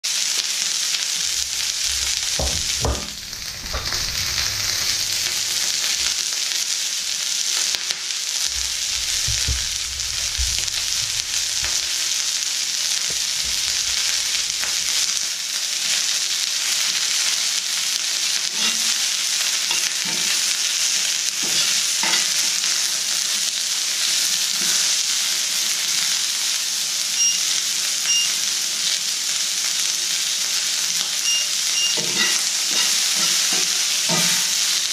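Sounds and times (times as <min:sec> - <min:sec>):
onions sizzling in a pan: 0:00.0 - 0:34.9
handling knocks and scrapes: 0:08.5 - 0:12.2.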